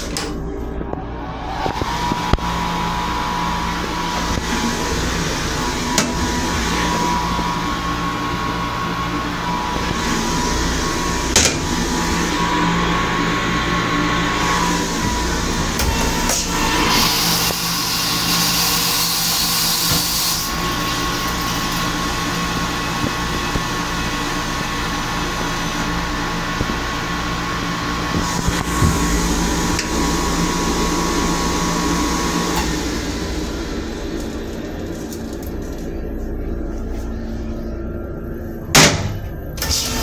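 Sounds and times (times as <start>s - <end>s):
toilet flushing hiss: 14.2s - 34.4s.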